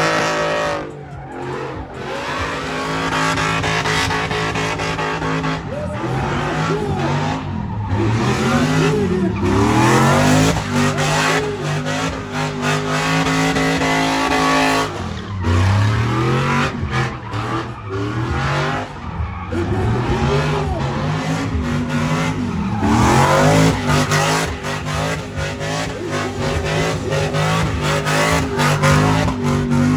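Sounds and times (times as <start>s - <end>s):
car engine revving: 0.0s - 29.9s
tires squealing: 0.0s - 29.9s.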